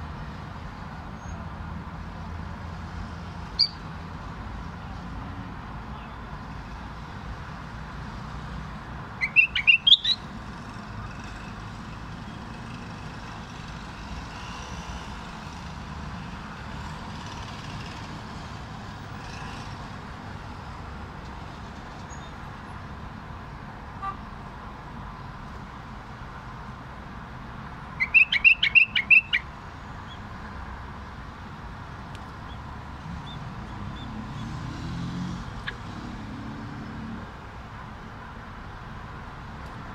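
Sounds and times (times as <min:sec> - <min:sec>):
traffic hum: 0:00.0 - 0:39.9
bird singing: 0:03.6 - 0:03.8, 0:09.2 - 0:10.3, 0:28.0 - 0:30.2.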